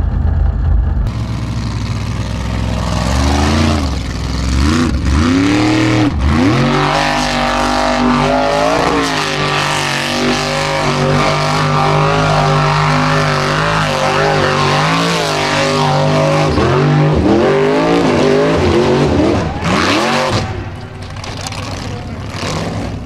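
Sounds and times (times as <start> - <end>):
buggy engine revving: 0.0 - 23.0.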